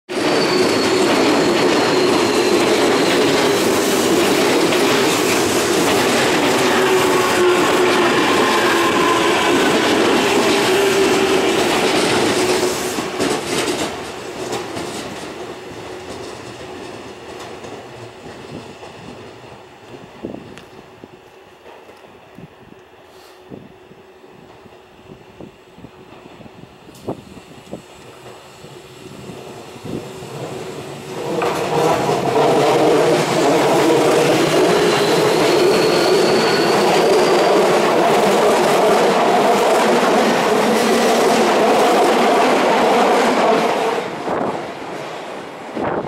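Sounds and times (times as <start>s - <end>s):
wheel squeal: 0.1s - 3.9s, 32.8s - 37.9s
train wheels rumbling on rails: 0.1s - 46.0s.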